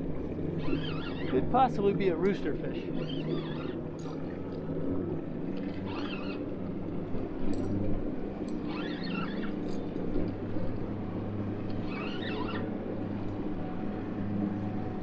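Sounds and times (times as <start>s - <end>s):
outboard motor humming: 0.0s - 15.0s
faint high squeaks: 0.6s - 1.5s, 2.7s - 4.2s, 5.7s - 6.5s, 8.5s - 10.0s, 11.7s - 12.8s.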